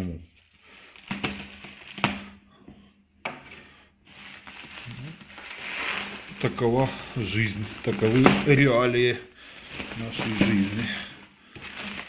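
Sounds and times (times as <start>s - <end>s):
plastic wrap crinkling: 0.0s - 2.4s, 3.7s - 12.0s.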